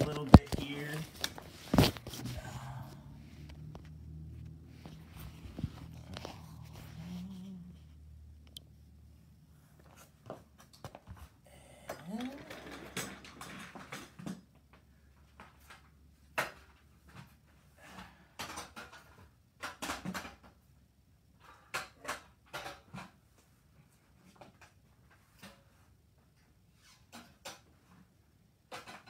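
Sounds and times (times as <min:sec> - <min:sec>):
handling clicks and knocks: 0:00.0 - 0:02.4.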